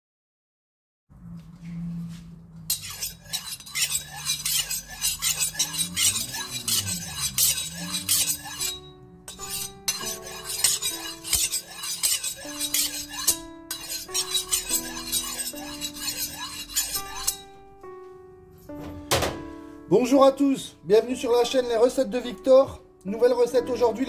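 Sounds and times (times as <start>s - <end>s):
background music: 2.6s - 24.0s
knife scraping on honing rod: 2.7s - 17.6s.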